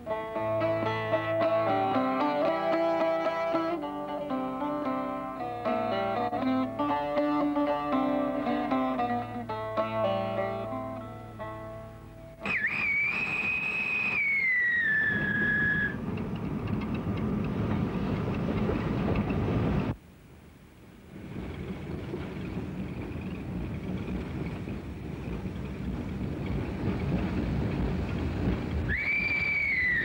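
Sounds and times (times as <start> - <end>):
rumble of train running: 11.6 - 20.0, 21.0 - 30.0
steam locomotive whistle: 12.4 - 16.0, 28.9 - 30.0.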